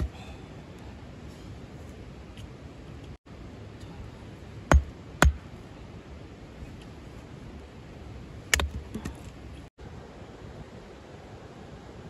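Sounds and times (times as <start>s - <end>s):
hatchet chopping wood: 4.7s - 5.5s, 8.5s - 9.2s.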